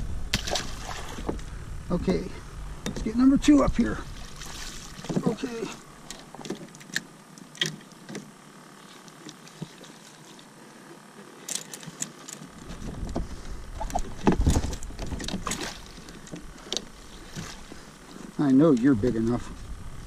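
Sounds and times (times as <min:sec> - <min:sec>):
low rumble: 0:00.0 - 0:06.1, 0:19.0 - 0:20.0.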